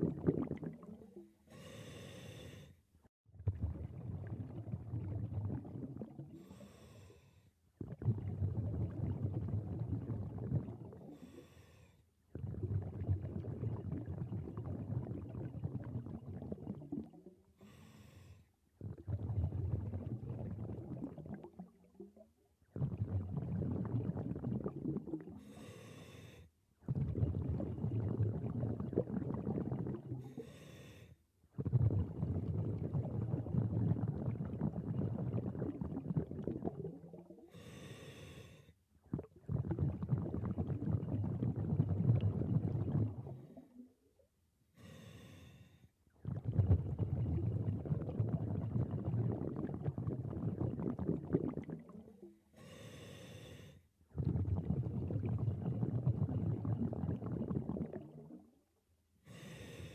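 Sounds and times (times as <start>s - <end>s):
exhaled bubbles rumbling: 0.0s - 1.4s, 3.3s - 6.7s, 7.8s - 11.4s, 12.3s - 17.5s, 18.7s - 25.5s, 26.8s - 30.4s, 31.5s - 37.5s, 39.0s - 44.2s, 46.1s - 52.4s, 54.1s - 58.7s.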